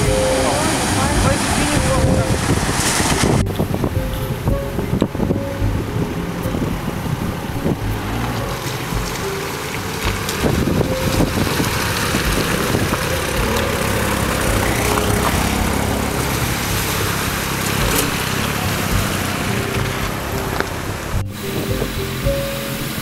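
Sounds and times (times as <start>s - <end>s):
off-road engines rumbling: 0.0s - 23.0s
water splashing: 0.0s - 23.0s
wind-like noise: 0.0s - 23.0s.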